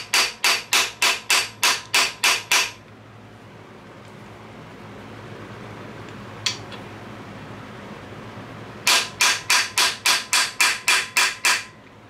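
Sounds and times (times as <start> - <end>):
hammer tapping on metal: 0.0 - 2.8, 8.8 - 11.8.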